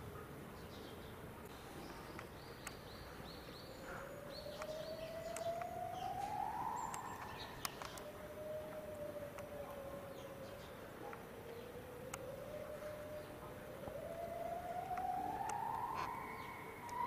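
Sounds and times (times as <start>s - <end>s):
siren wailing: 3.6s - 17.0s.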